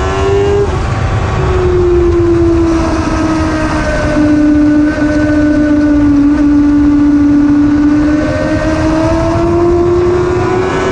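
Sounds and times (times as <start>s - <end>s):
motorcycle engine revving: 0.0s - 10.9s
wind rumble on camera: 0.0s - 10.9s.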